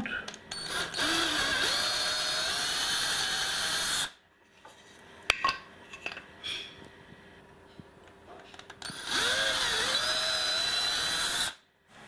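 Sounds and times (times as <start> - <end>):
cordless drill boring through wood: 0.6 - 4.2, 8.8 - 11.6.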